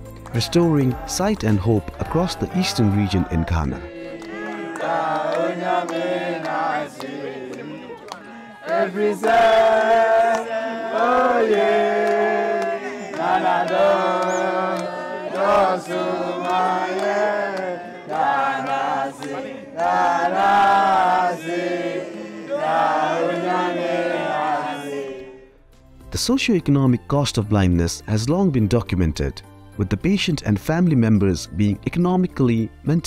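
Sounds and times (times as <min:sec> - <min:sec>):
crowd singing together: 0:01.9 - 0:25.6.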